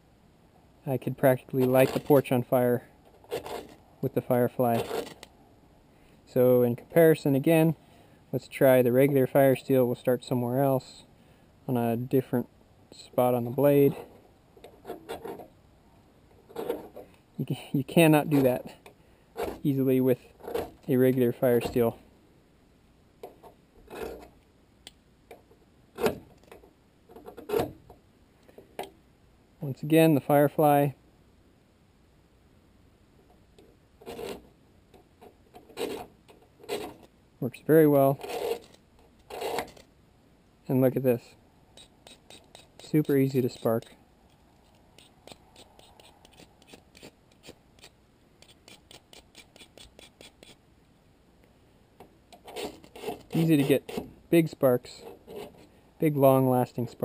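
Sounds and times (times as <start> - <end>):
fire steel rasping on knife: 1.6 - 2.3, 4.7 - 5.3, 41.8 - 44.0, 44.6 - 50.6, 52.4 - 54.1.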